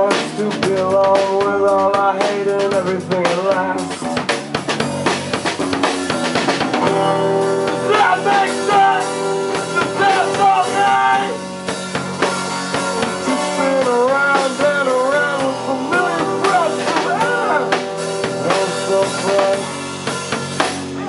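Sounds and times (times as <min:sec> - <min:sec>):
acoustic-electric guitar: 0:00.0 - 0:21.0
bass guitar: 0:00.0 - 0:21.0
drum kit: 0:00.0 - 0:21.0.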